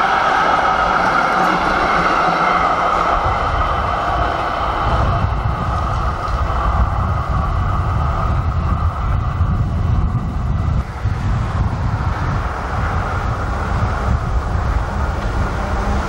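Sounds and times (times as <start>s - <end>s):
electric tram whine: 0.0s - 16.0s
low rumble: 2.4s - 16.0s.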